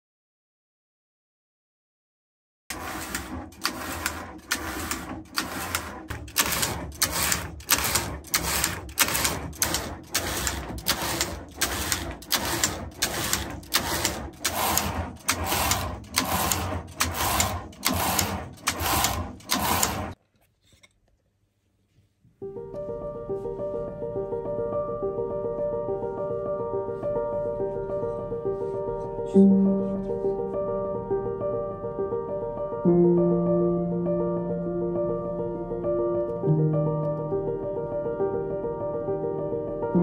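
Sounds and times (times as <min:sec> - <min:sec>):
knitting machine carriage clattering: 0:02.7 - 0:20.2.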